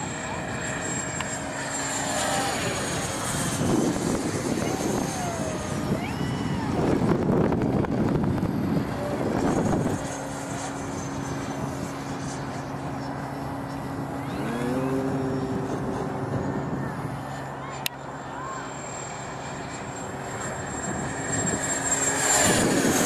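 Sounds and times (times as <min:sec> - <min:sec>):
model jet electric fans: 0:00.0 - 0:23.0.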